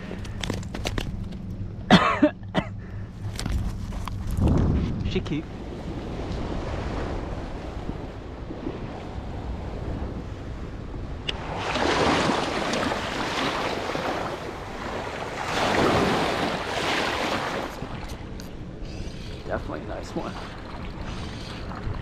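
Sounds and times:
wind rumble on microphone: 0:03.2 - 0:22.0
small waves washing on sand: 0:11.3 - 0:18.1.

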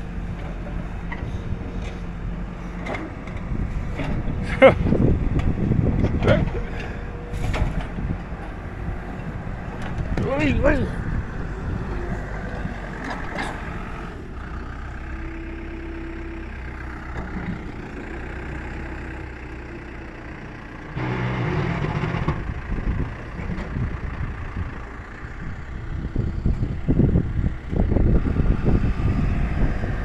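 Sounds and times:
diesel engine running: 0:00.0 - 0:30.0.

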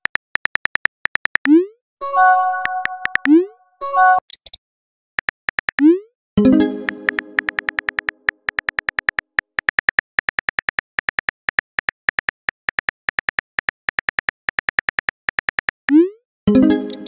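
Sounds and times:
phone keyboard key clicks: 0:07.0 - 0:15.8.

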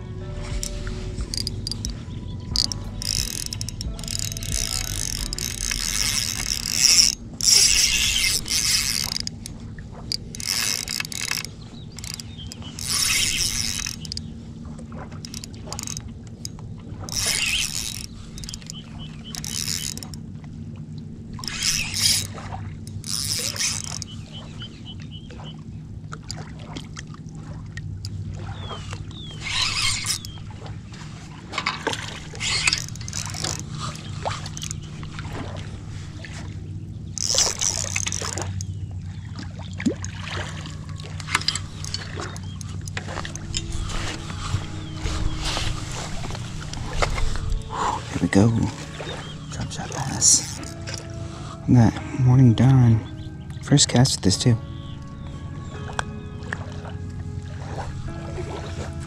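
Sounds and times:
steady low hum: 0:00.0 - 0:59.0
fishing reel whirring: 0:00.3 - 0:14.4, 0:15.0 - 0:20.4, 0:21.3 - 0:24.7, 0:28.0 - 0:30.7, 0:31.5 - 0:38.9, 0:39.8 - 0:51.8.

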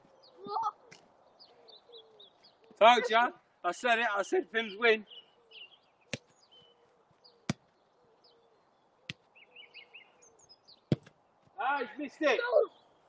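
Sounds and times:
birds chirping faintly: 0:00.0 - 0:13.0
football kicks: 0:10.9 - 0:11.2.

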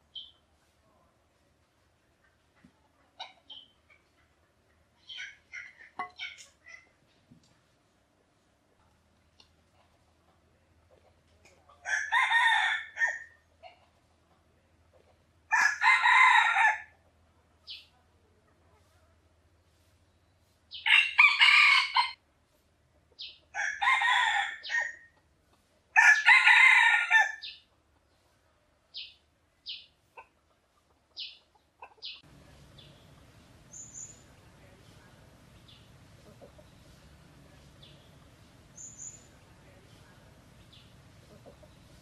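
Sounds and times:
rooster crowing: 0:11.8 - 0:13.3, 0:15.5 - 0:16.9, 0:20.8 - 0:22.2, 0:23.6 - 0:25.0, 0:26.0 - 0:27.5.

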